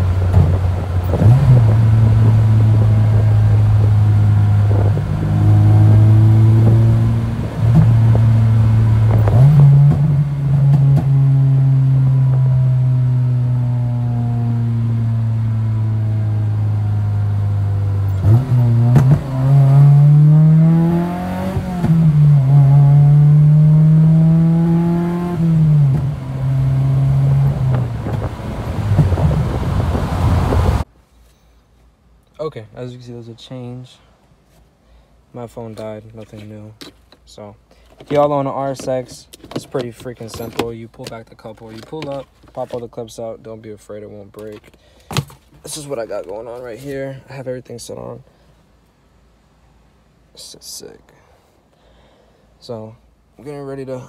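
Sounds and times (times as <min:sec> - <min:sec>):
car engine heard from inside: 0:00.0 - 0:30.9.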